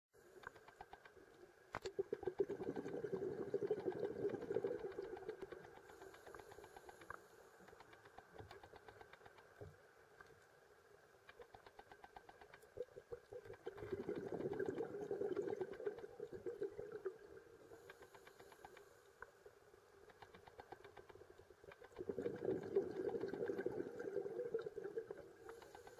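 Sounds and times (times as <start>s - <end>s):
diver's bubbles rumbling underwater: 2.1s - 5.4s, 13.6s - 17.3s, 22.0s - 25.3s.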